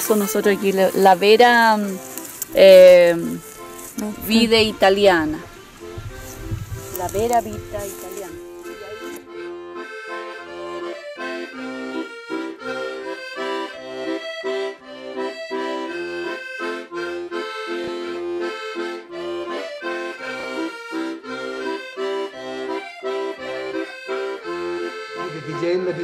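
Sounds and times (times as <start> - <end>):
sustained reedy chords: 0.0 - 26.0.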